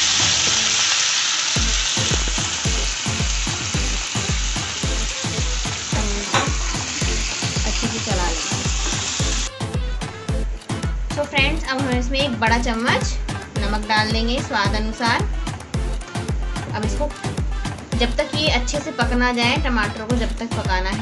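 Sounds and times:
tomatoes sizzling in a pan: 0.0s - 9.6s
background music with steady beat: 0.0s - 21.0s.

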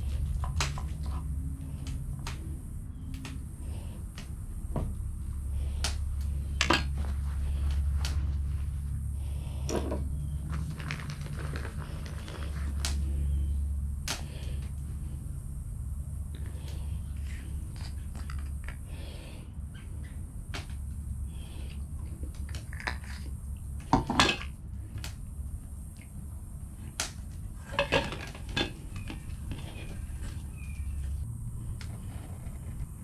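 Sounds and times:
sharp clicks and light knocks: 0.0s - 5.1s
steady low rumble: 0.0s - 33.0s.

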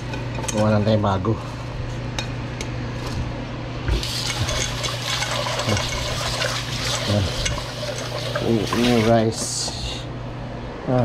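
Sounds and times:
tap water running into pot: 3.9s - 9.6s
hands scrubbing pot: 4.0s - 9.5s.

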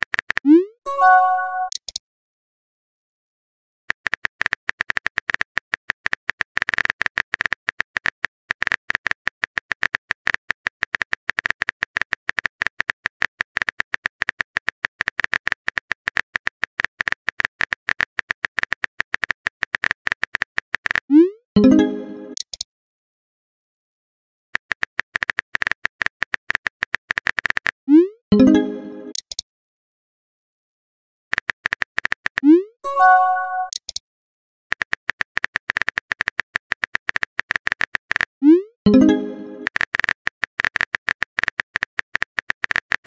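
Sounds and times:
rising chime: 0.9s - 1.7s, 32.9s - 33.7s.

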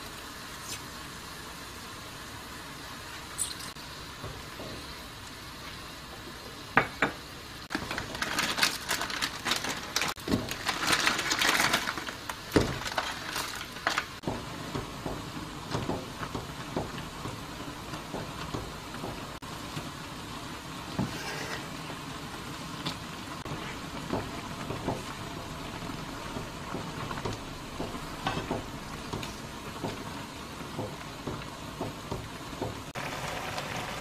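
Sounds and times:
broth simmering with hiss: 0.0s - 34.0s
noodles crackling and rustling: 7.7s - 20.0s.

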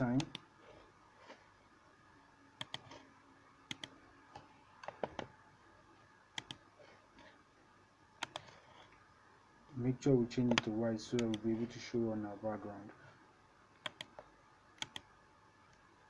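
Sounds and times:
mouse and keyboard clicks: 2.6s - 3.0s, 3.7s - 3.9s, 6.4s - 6.6s, 8.2s - 8.6s, 13.8s - 14.2s.

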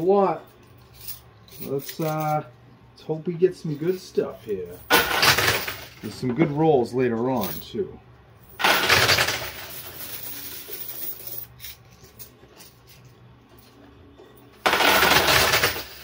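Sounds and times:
coins clattering: 0.4s - 2.5s, 3.7s - 6.3s, 8.5s - 16.0s.

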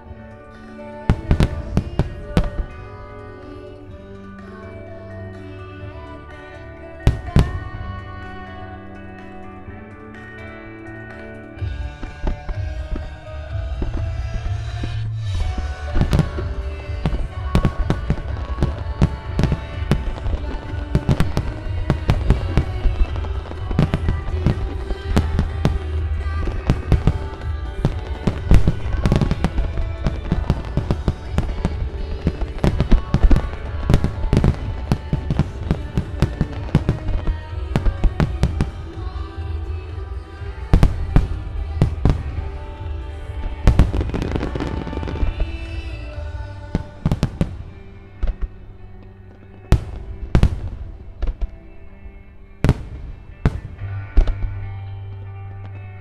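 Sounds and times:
music playing: 0.0s - 56.0s.

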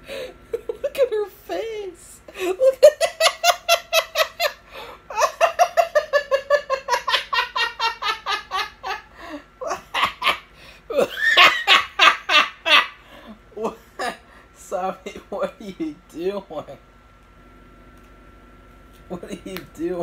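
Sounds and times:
person laughing heartily: 0.0s - 1.2s, 2.3s - 14.5s.

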